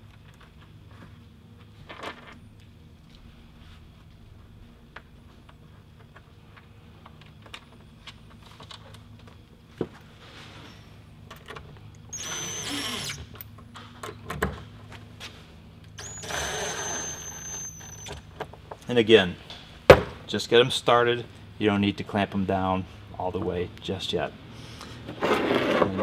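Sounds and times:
cordless screw gun whining: 0:12.1 - 0:13.3, 0:16.0 - 0:18.2.

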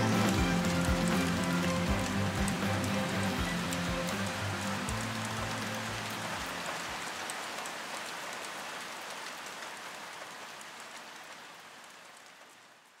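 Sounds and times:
music track: 0:00.0 - 0:07.0
falling water hissing: 0:00.0 - 0:08.5.

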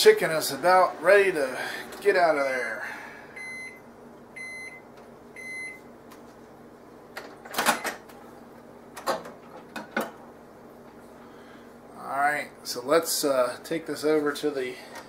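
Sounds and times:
microwave oven beeping: 0:03.3 - 0:06.0, 0:07.1 - 0:08.1.

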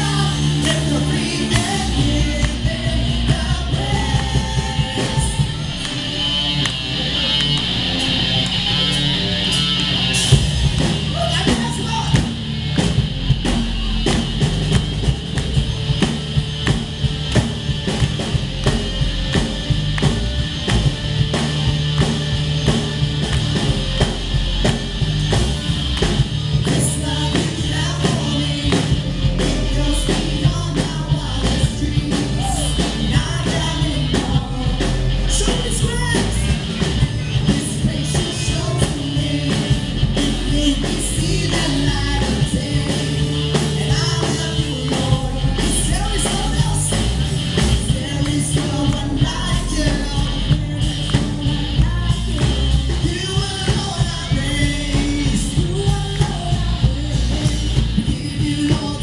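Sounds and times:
people singing: 0:00.0 - 0:12.2, 0:26.6 - 0:59.0
drum kit: 0:00.0 - 0:59.0
electric guitars: 0:00.0 - 0:59.0.

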